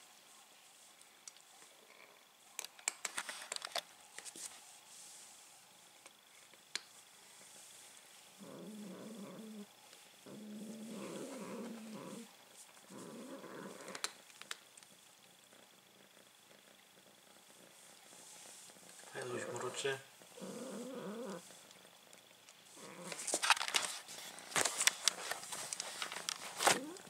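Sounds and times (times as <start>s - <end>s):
cat rumbling: 8.4s - 14.2s, 14.8s - 23.4s, 26.2s - 27.0s.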